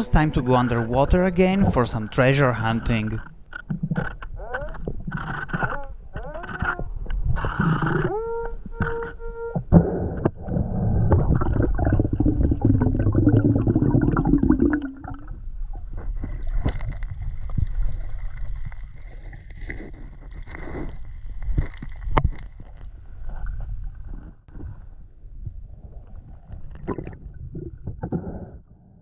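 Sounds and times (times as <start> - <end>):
steady high tone: 0.0 - 3.2
loud underwater bubbling rumble: 10.4 - 15.5.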